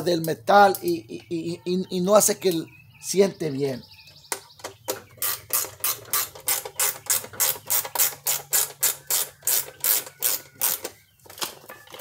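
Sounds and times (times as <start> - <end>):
ratchet wrench clicking: 5.2 - 11.0.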